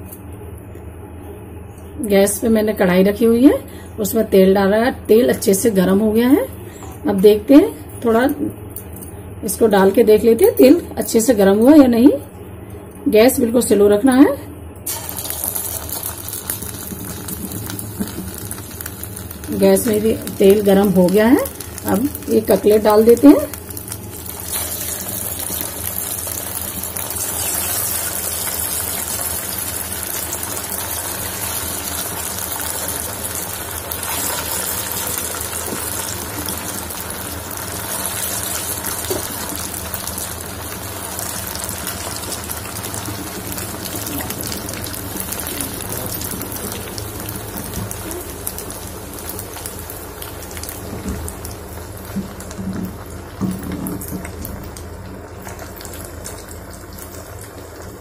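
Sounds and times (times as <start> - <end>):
oil sizzling and bubbling: 14.8 - 58.0.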